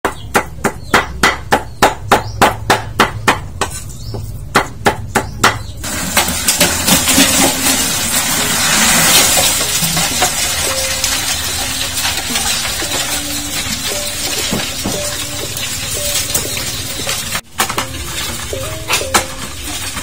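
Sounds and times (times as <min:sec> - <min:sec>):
crab shells clattering on metal: 0:05.8 - 0:20.0.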